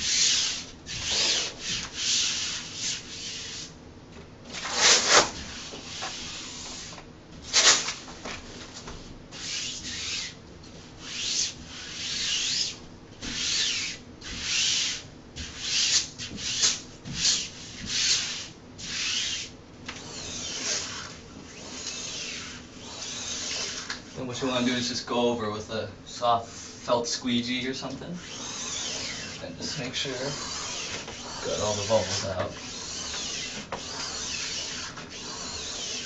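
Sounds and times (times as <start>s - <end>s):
hand swishing across wall wrap: 4.5s - 10.4s, 11.0s - 19.5s.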